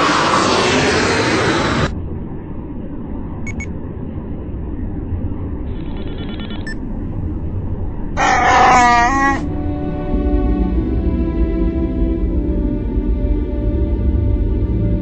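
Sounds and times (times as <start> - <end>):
low cockpit hum: 1.5 - 15.0
computer chirping: 3.5 - 3.7, 5.7 - 6.8
short electronic beeps: 3.5 - 3.7
creature growling: 8.2 - 9.5.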